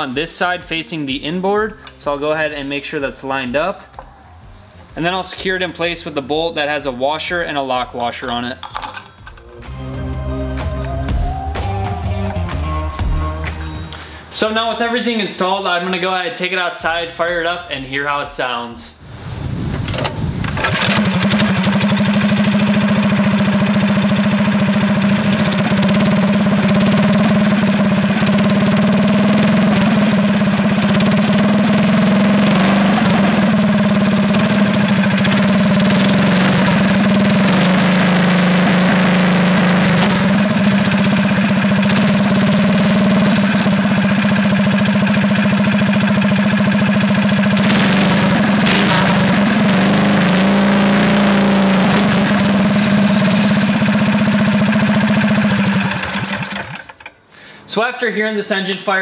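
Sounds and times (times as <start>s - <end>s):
small engine starting and running: 19.9s - 57.2s.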